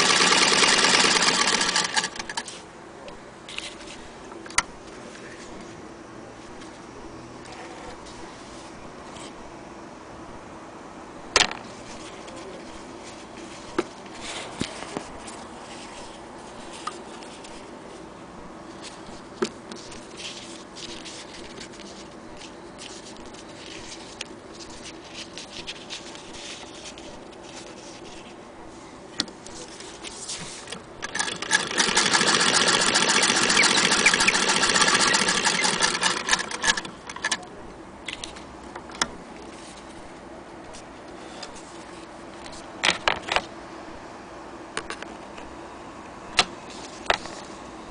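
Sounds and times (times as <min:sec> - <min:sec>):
sewing machine stitching: 0:00.0 - 0:02.5, 0:31.0 - 0:37.4.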